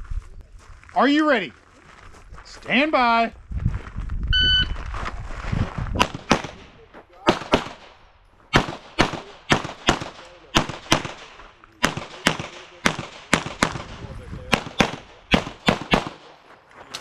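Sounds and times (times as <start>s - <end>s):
pistol shots with echo: 6.0s - 16.4s.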